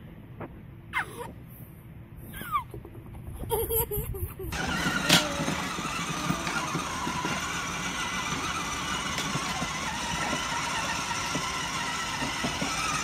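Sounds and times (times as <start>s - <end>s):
wheels rolling on concrete: 4.4s - 13.0s
toy car electric motor whirring: 4.5s - 13.0s.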